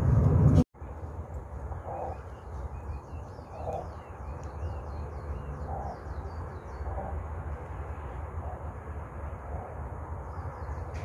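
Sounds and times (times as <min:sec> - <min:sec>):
steady low rumble: 0:00.0 - 0:11.0
small birds chirping: 0:01.3 - 0:08.7.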